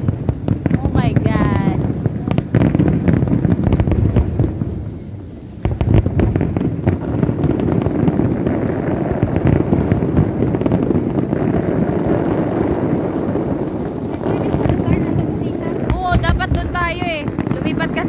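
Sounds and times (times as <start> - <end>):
fireworks banging: 0.0 - 18.0.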